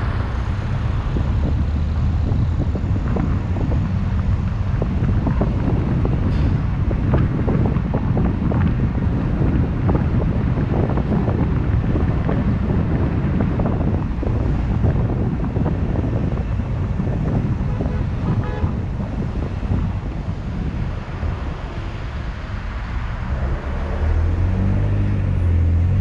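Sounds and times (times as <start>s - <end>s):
road and wind rumble: 0.0s - 26.0s.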